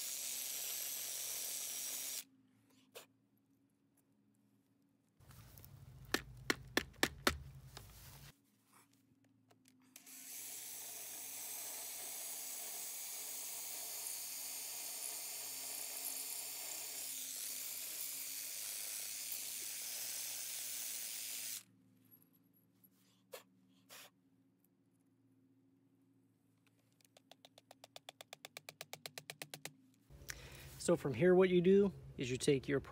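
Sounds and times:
drill boring into concrete: 0:00.0 - 0:02.2, 0:10.0 - 0:21.7.

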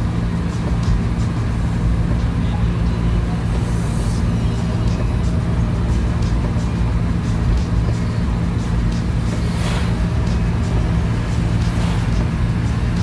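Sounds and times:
car engine and road hum: 0:00.0 - 0:13.0
brief hiss: 0:09.2 - 0:10.1, 0:11.6 - 0:12.3.

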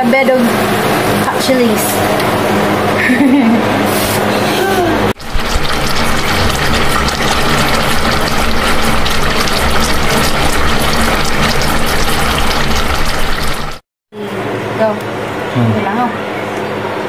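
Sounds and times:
liquid boiling and sizzling: 0:05.2 - 0:13.8.

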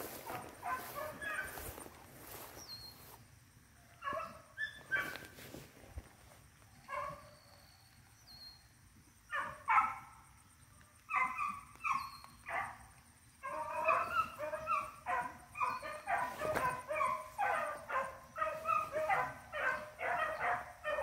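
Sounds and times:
dogs baying: 0:00.0 - 0:01.9, 0:13.4 - 0:21.0.

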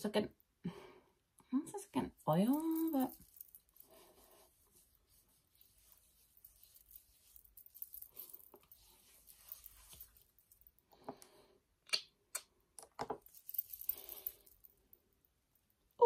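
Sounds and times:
hands rubbing skin: 0:02.5 - 0:10.5.

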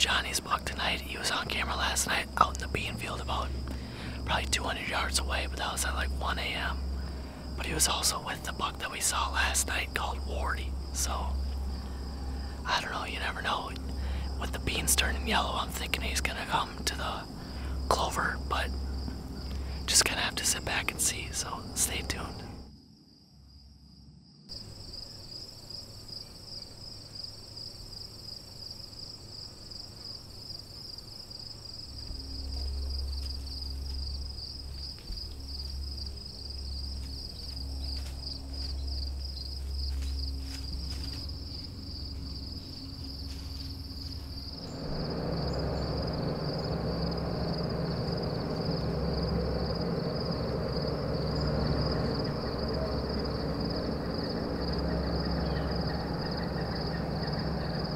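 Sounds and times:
low rumble: 0:00.0 - 0:22.8, 0:32.0 - 0:57.9
crickets trilling: 0:00.0 - 0:57.9.

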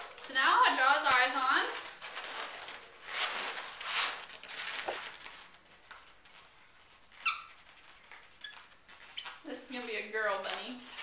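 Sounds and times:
rubbery balloon squeak: 0:06.8 - 0:09.5.

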